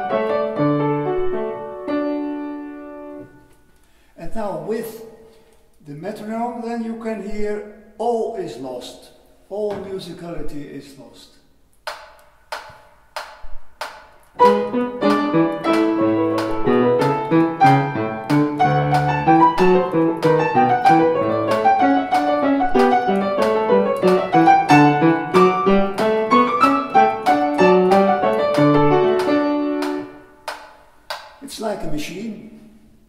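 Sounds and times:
metronome clicking: 0:00.0 - 0:02.1, 0:11.8 - 0:31.4
fast piano passage: 0:00.0 - 0:03.4, 0:14.4 - 0:30.4.

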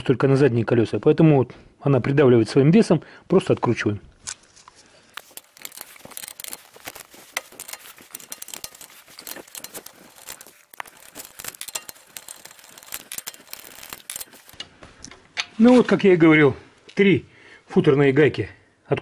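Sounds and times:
socket wrench clicking and rattling: 0:05.2 - 0:14.6.

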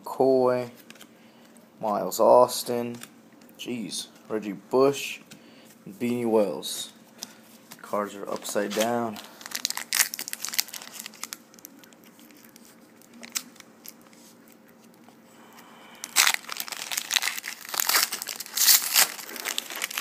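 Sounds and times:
foil wrapper crinkling and tearing: 0:08.2 - 0:15.0, 0:16.0 - 0:20.0.

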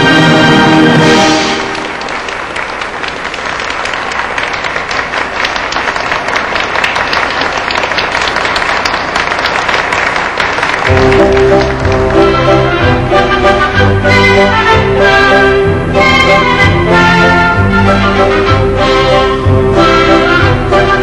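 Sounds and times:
audience applauding: 0:01.4 - 0:14.2
orchestra closing chord: 0:10.9 - 0:21.0.

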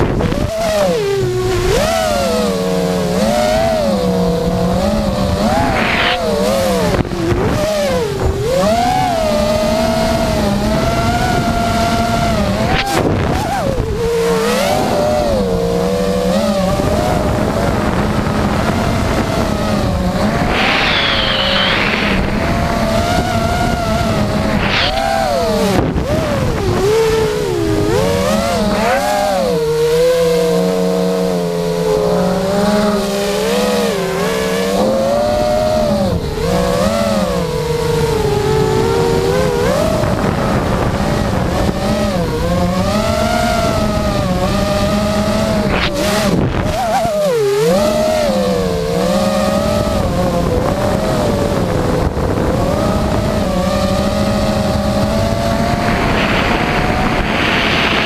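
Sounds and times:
drone motors whining: 0:00.0 - 0:58.0.

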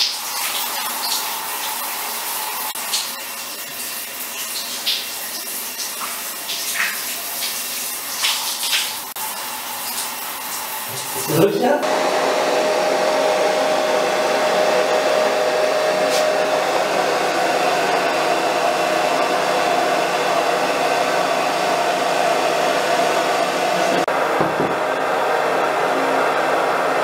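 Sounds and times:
electric blower running: 0:11.3 - 0:27.0.

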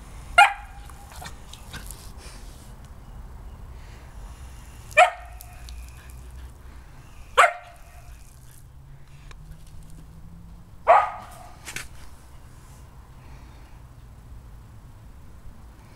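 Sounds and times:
dog barking: 0:00.4 - 0:01.2, 0:05.0 - 0:05.6, 0:07.4 - 0:08.2, 0:10.9 - 0:11.6.

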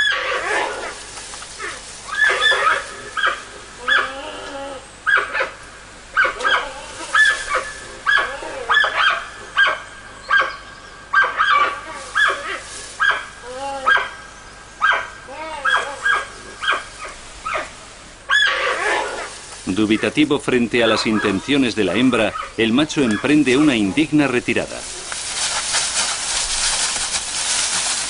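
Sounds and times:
panda calling: 0:01.6 - 0:05.6, 0:06.2 - 0:10.6, 0:11.2 - 0:14.2, 0:14.8 - 0:25.2.

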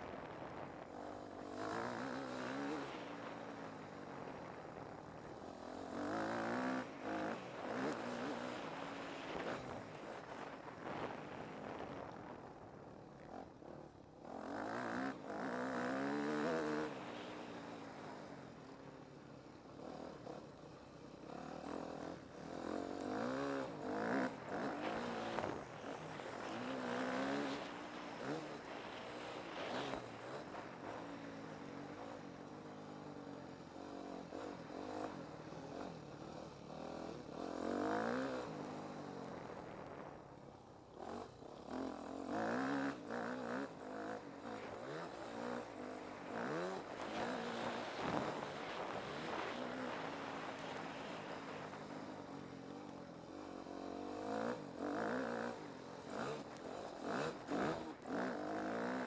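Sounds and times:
motocross bike engine revving: 0:21.3 - 0:32.4, 0:41.0 - 0:52.0, 0:53.6 - 0:59.0.

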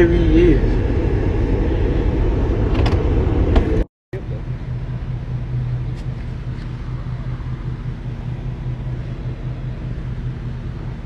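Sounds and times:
vehicle engine humming: 0:00.0 - 0:11.0.

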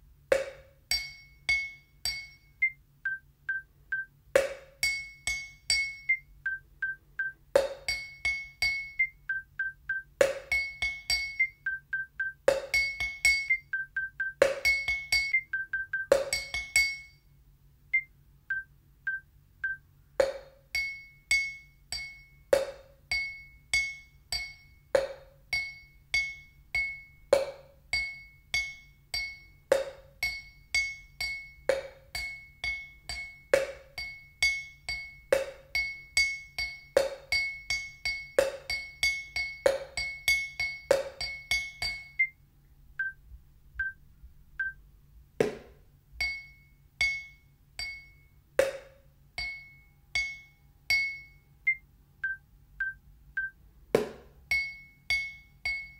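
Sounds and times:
faint beeps: 0:11.4 - 0:12.4, 0:15.3 - 0:16.1, 0:17.9 - 0:19.8, 0:42.2 - 0:42.4, 0:44.6 - 0:44.8, 0:51.7 - 0:53.6.

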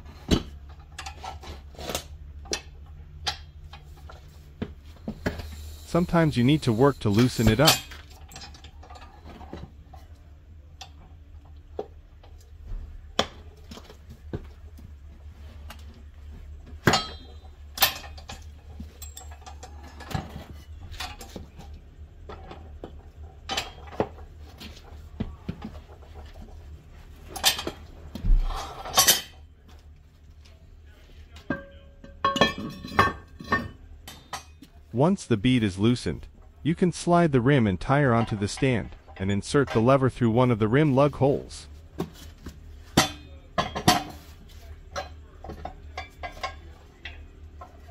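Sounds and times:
steady low hum: 0:00.0 - 0:47.9
metal clanks on wheel rim: 0:16.6 - 0:21.7, 0:31.4 - 0:34.7, 0:42.8 - 0:47.9
ringing metallic clang: 0:16.8 - 0:18.2.

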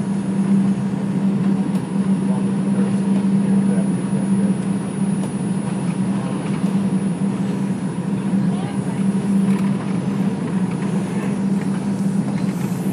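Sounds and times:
low hum: 0:00.0 - 0:12.9
train wheels rumbling on rail: 0:05.2 - 0:12.9.

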